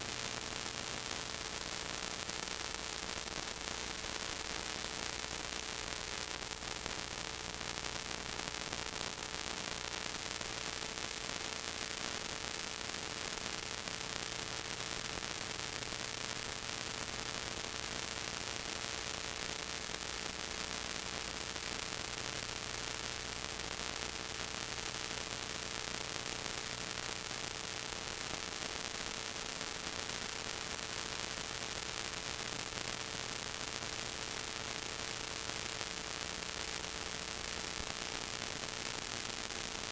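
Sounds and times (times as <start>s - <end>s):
faint steady hum: 0.0s - 39.9s.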